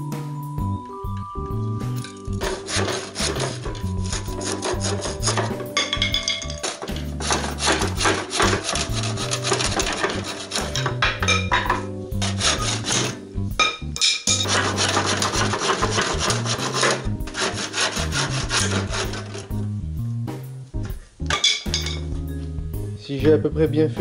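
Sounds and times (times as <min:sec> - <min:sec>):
background music: 0:00.0 - 0:24.0
hand saw cutting wood: 0:02.4 - 0:05.8, 0:06.4 - 0:11.0, 0:12.2 - 0:13.2, 0:14.4 - 0:19.6.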